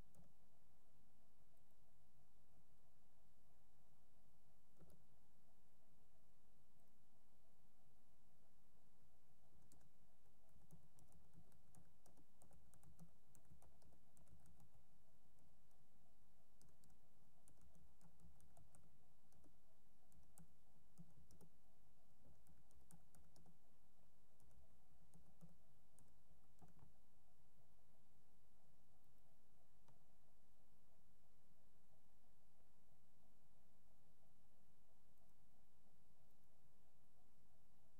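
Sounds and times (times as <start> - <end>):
low steady hum: 0.0 - 37.9
typing on computer keyboard: 9.6 - 15.8, 16.6 - 21.6, 22.2 - 23.6, 24.4 - 27.0.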